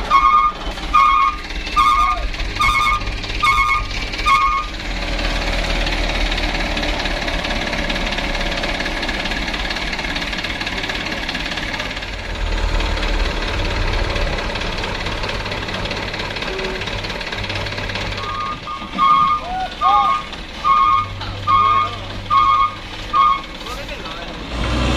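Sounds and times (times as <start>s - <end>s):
truck reversing alarm beeps: 0.0s - 4.7s, 18.2s - 23.5s
diesel truck engine rumbling: 0.0s - 24.9s.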